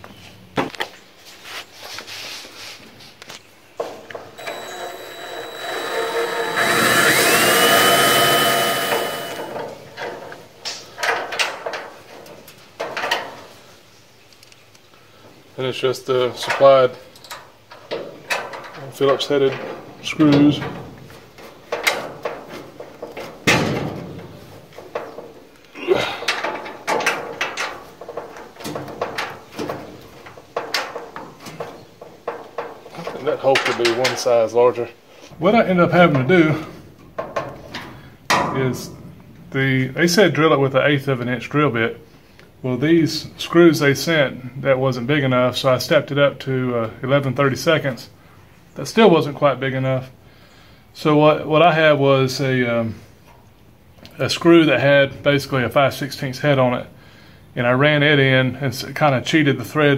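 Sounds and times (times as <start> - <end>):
screw creaking into metal: 4.4 - 9.6
cordless drill drilling sheet steel: 4.4 - 9.8.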